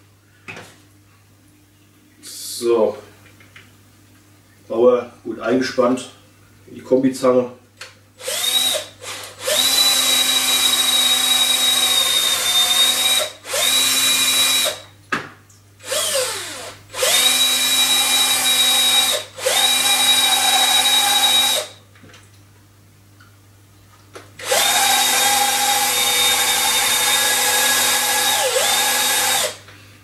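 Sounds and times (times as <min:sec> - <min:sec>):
electric drill whining: 0:08.2 - 0:14.8, 0:15.8 - 0:21.8, 0:24.4 - 0:29.6.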